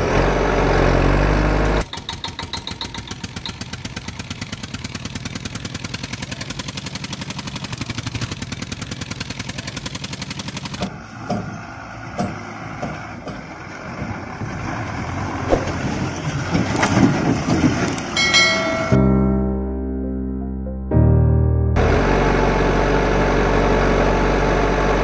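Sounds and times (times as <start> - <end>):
engine puttering: 0.0 - 11.6
bright chime: 18.2 - 19.3
music: 18.9 - 21.8.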